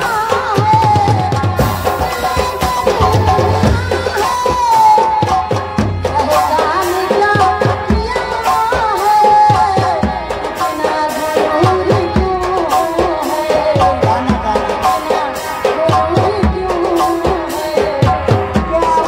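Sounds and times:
hand drum rhythm: 0.0 - 19.0.

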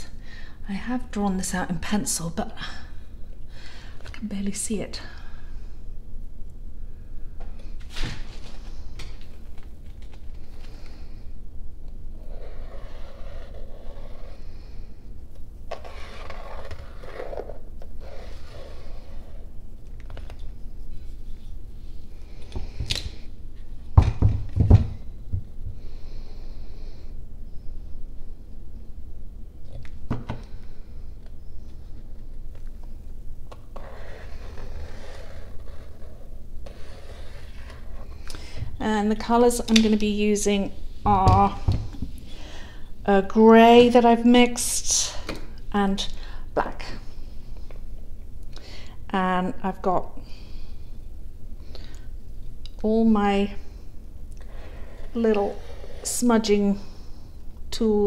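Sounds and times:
pen scratching along ruler: 12.2 - 14.4, 15.7 - 19.4, 33.8 - 38.0, 54.7 - 56.1.

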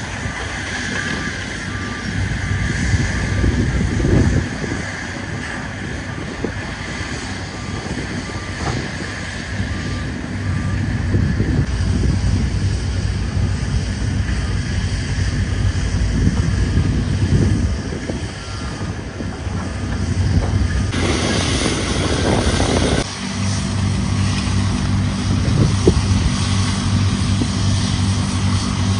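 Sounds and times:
loud low rumble: 0.0 - 28.9
wind noise on microphone: 0.0 - 28.9
vehicle backup alarm beeping: 0.4 - 3.8, 7.2 - 11.4.

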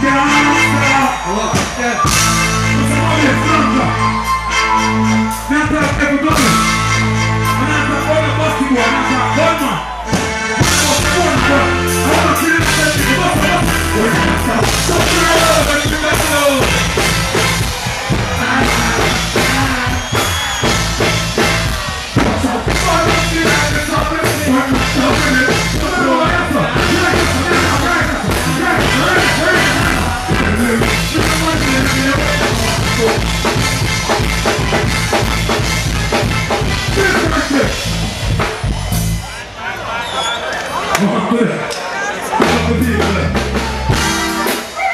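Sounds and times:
pulsing bass line: 0.0 - 39.4
dancehall music: 0.0 - 44.9
person singing: 21.6 - 33.2.

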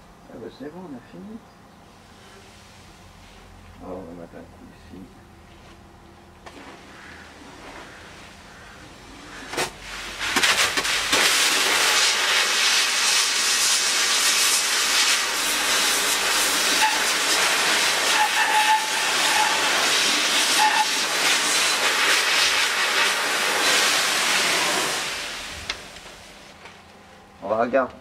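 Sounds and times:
sandblasting gun hissing: 9.8 - 26.4.

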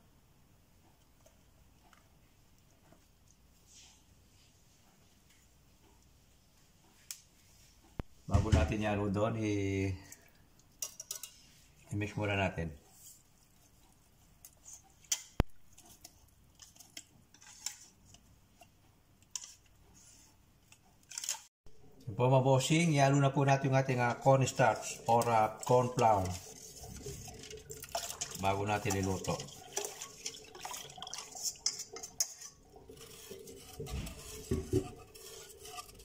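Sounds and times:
whisk scraping metal bowl: 14.4 - 18.2, 23.4 - 36.0
liquid being poured: 23.6 - 36.0.

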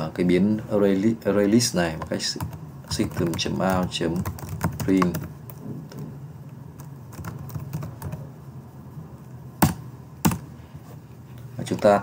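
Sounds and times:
typing on computer keyboard: 2.0 - 5.3, 6.8 - 8.2.

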